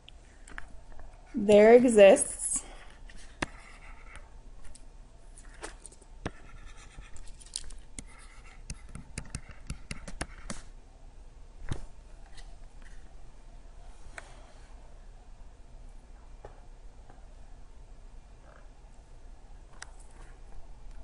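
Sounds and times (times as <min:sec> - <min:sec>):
stylus tapping on tablet screen: 0:08.0 - 0:10.6.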